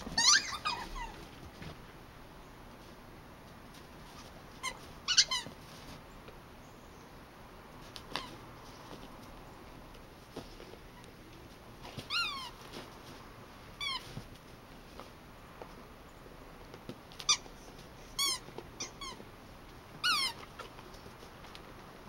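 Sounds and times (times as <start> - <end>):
rubber squeaky toy squeaking: 0.0 - 1.2, 4.1 - 5.6, 8.1 - 8.4, 12.0 - 12.6, 13.8 - 14.1, 17.2 - 19.3, 20.0 - 20.8.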